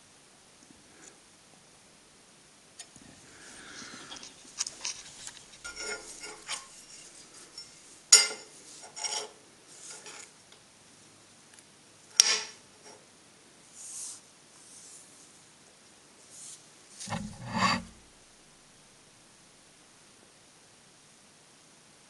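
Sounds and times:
metal clinks and scrapes: 3.8 - 10.3, 17.0 - 18.1.

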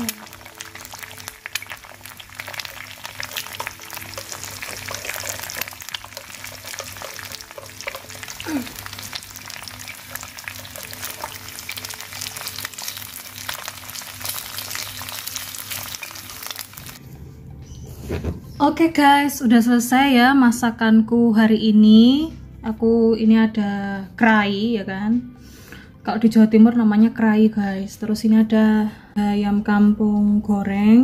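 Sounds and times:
egg sizzling in hot oil: 0.0 - 17.0.

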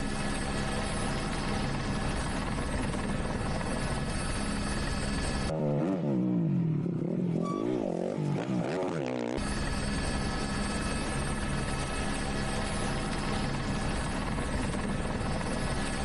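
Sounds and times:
helicopter noise: 0.0 - 5.9, 7.0 - 16.0
motorcycle engine revving: 5.4 - 9.5.

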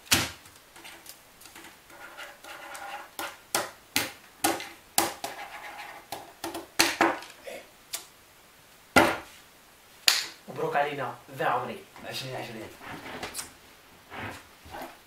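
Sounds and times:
hands scuffling on wooden table: 12.5 - 15.0.

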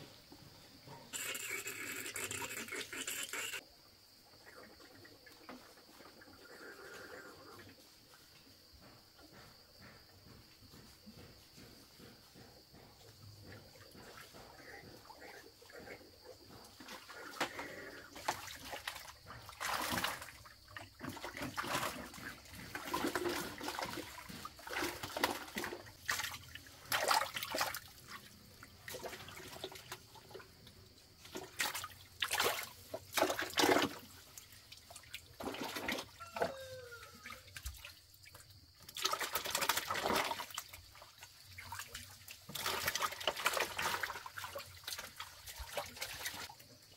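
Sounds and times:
water splashing and pouring: 16.9 - 30.4, 31.2 - 46.8.

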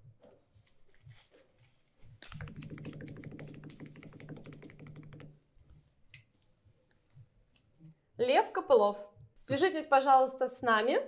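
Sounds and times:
faint handling sounds: 0.2 - 2.5.

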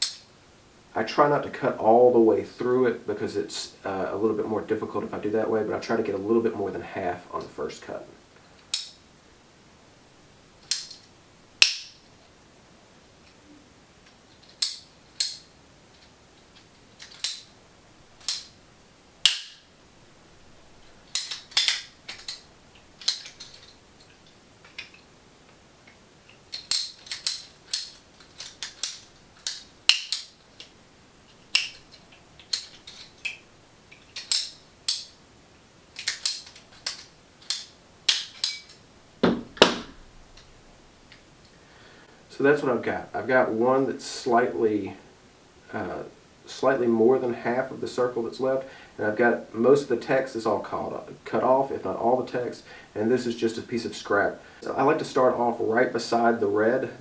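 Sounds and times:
pipe cutters clicking: 21.1 - 25.0, 25.9 - 30.7, 31.5 - 35.1
cutters thumping on wooden table: 39.2 - 40.0.

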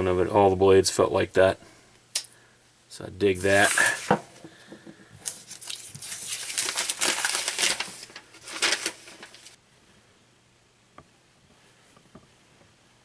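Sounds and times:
paper rustling and crinkling: 5.2 - 9.6.

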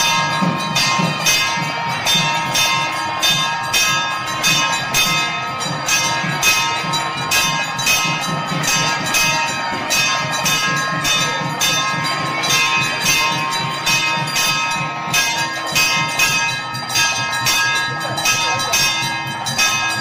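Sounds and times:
temple bells ringing: 0.0 - 20.0.

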